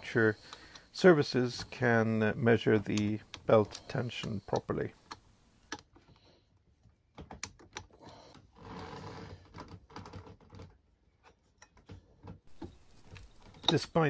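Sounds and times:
light handling clicks: 2.7s - 5.9s
rustling: 12.5s - 14.0s.

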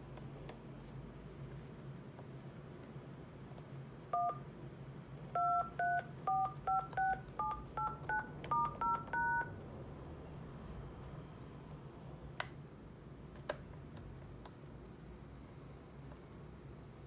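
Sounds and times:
keypad touch-tones: 4.2s - 4.4s, 5.4s - 9.6s.

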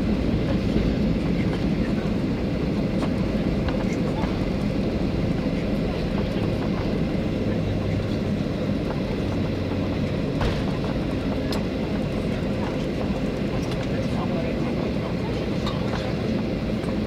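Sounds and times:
airplane cabin airflow and engines: 0.0s - 17.0s.

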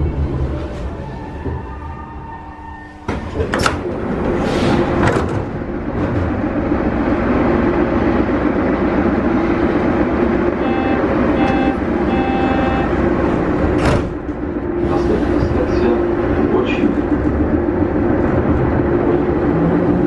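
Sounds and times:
stopped train humming: 0.0s - 20.0s
sliding train doors banging open: 3.0s - 6.8s, 13.1s - 15.4s
short electronic tones: 10.6s - 12.9s.

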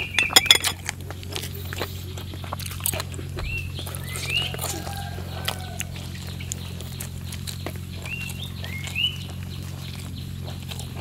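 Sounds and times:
wet chewing and lip-smacking: 0.0s - 11.0s
metal spoon clinking on bowl: 0.1s - 0.8s.

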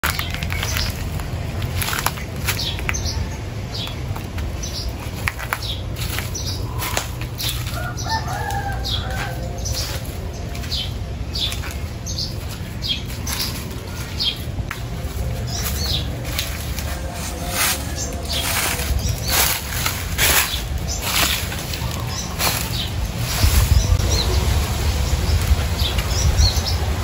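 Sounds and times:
low wind rumble: 0.0s - 27.0s
rooster crowing: 7.6s - 10.1s.

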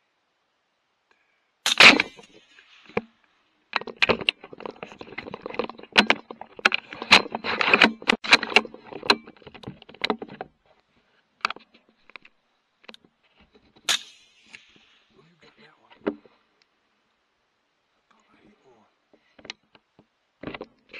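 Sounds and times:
rifle handling clicks and knocks: 1.7s - 10.6s, 11.4s - 15.0s.

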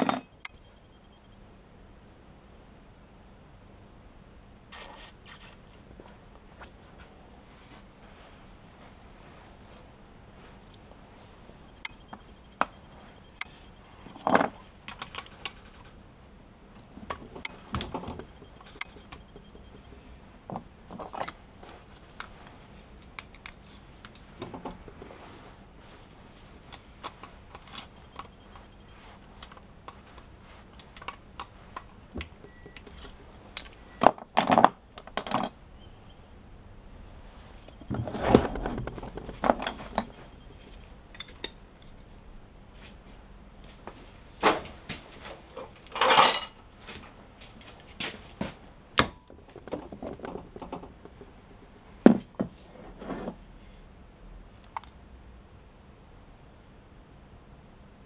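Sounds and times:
metal tools clinking on engine: 0.0s - 0.4s, 32.4s - 35.6s, 39.2s - 40.2s, 41.1s - 42.0s, 45.6s - 46.7s
heavy knock and scrape: 37.9s - 39.6s.

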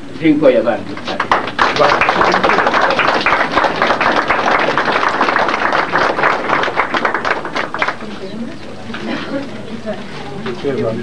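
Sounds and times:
crowd applauding: 0.9s - 8.5s.

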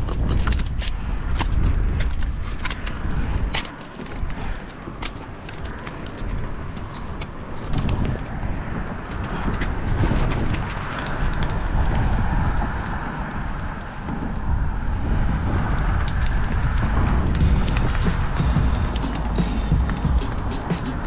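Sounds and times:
low outdoor rumbling: 16.8s - 21.0s.

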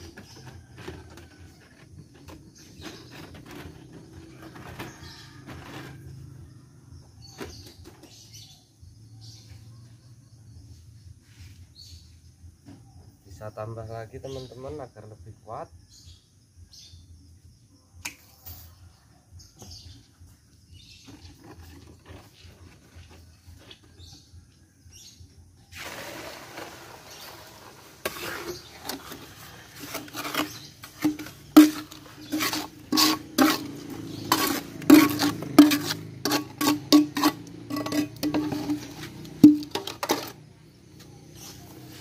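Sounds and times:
metal spoon scraping metal mould: 28.0s - 40.4s.

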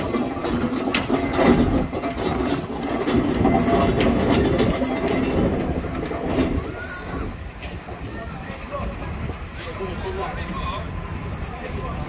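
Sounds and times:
mechanical clatter and clanks: 0.0s - 8.6s
steam engine chugging: 0.0s - 12.0s.

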